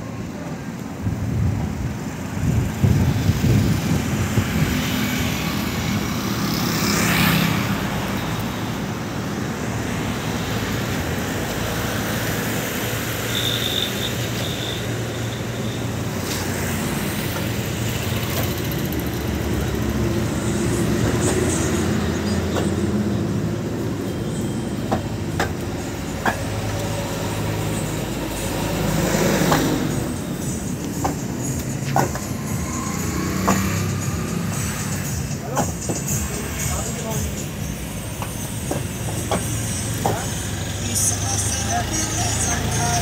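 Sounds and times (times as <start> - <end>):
road traffic: 0.0 - 43.0
vehicle passing: 2.5 - 8.7, 25.8 - 38.5.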